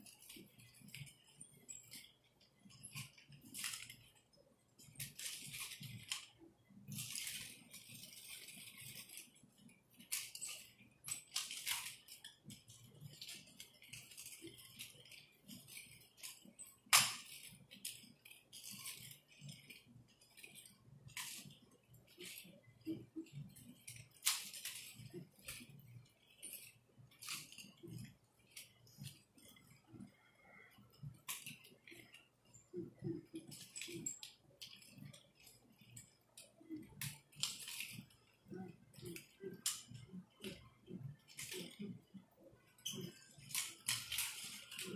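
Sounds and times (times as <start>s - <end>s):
chain jingling rattle: 6.9s - 30.2s, 30.8s - 44.9s
nunchaku swishing: 10.0s - 30.2s, 30.9s - 44.9s.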